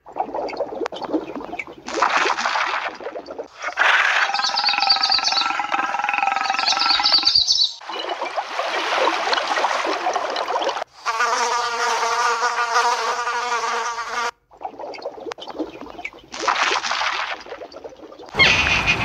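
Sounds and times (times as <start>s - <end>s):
flies buzzing: 11.0s - 14.4s.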